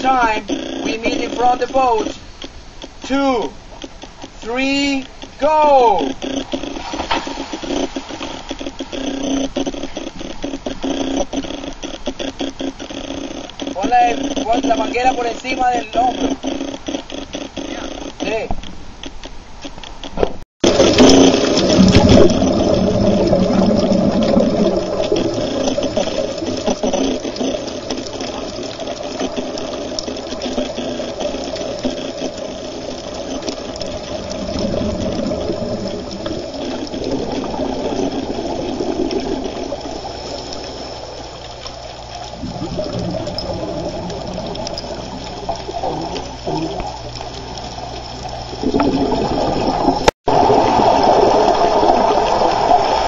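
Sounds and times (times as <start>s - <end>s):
underwater bubbles from divers: 20.6s - 53.0s.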